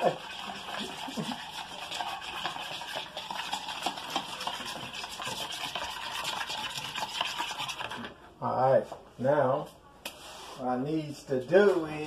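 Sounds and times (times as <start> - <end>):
metal spoon stirring in a bowl: 0.0 - 8.2.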